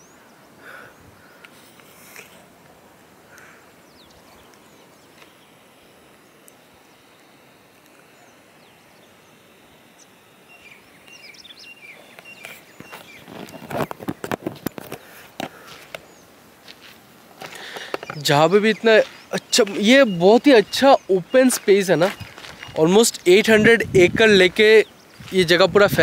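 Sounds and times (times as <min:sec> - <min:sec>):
small bird chirps: 0:07.6 - 0:14.4, 0:18.0 - 0:23.5
knocks and rustles: 0:12.8 - 0:16.0.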